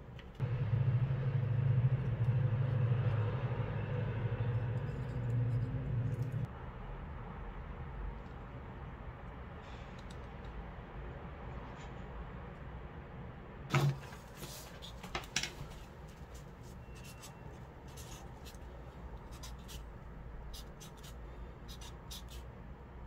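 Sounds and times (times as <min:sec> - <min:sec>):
low steady hum: 0:00.0 - 0:09.5
marker writing on cardboard: 0:16.8 - 0:18.6, 0:19.2 - 0:19.9, 0:20.5 - 0:22.5.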